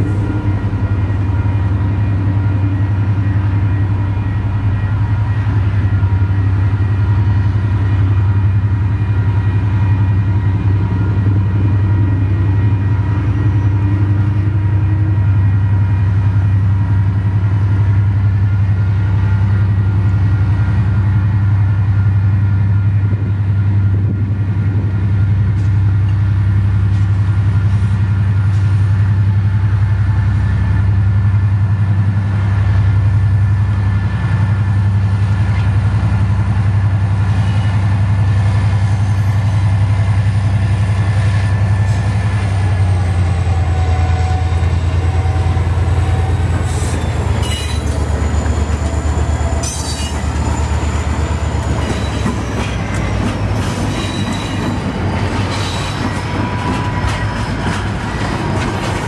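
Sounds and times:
heavy engine rumbling: 0.0s - 9.0s.

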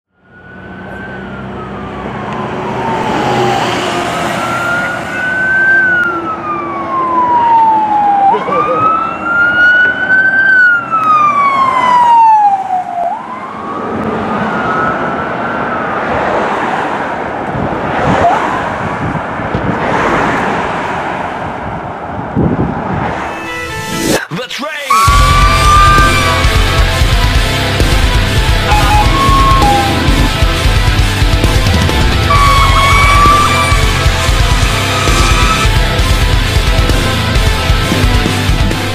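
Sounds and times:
fire truck siren wailing: 0.1s - 17.4s, 24.9s - 38.9s
low engine hum: 25.1s - 38.9s.

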